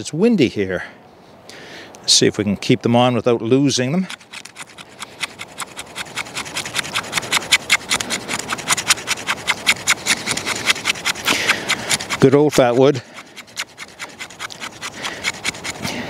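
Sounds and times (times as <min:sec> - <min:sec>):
knife blade scraping wood: 0:04.0 - 0:16.0.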